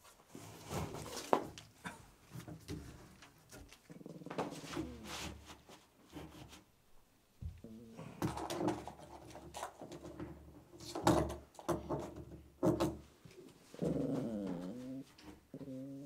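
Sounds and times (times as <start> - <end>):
small dog growling: 3.8 - 5.1, 7.6 - 8.3, 13.4 - 16.0.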